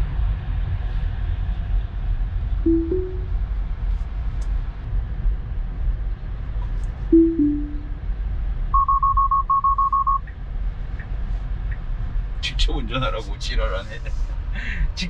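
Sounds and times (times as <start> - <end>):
road and tyre rumble: 0.0 - 2.6, 3.4 - 7.1, 7.8 - 15.0
falling two-note chime: 2.7 - 3.3, 7.2 - 7.9
rising two-note chime: 2.7 - 3.3, 7.2 - 7.9.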